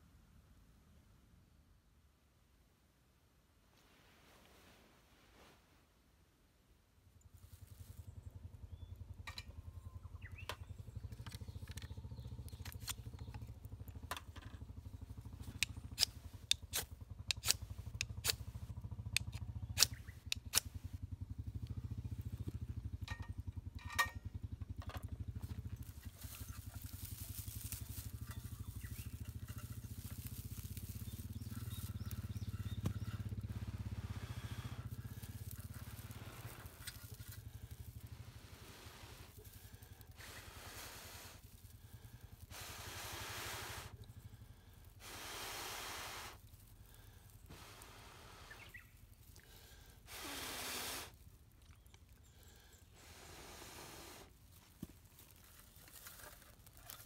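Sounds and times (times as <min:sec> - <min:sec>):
dry grass crackling and rustling: 0:07.2 - 0:42.6, 0:46.4 - 0:50.1, 0:54.3 - 0:57.0
steady low rumble: 0:07.2 - 0:50.1.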